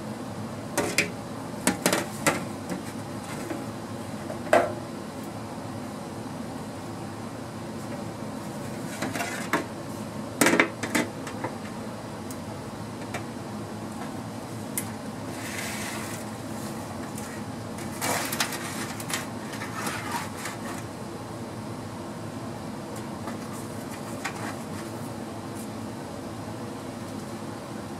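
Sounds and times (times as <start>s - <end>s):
steady background hum: 0.0s - 27.9s
tray sliding scrape: 15.3s - 20.8s.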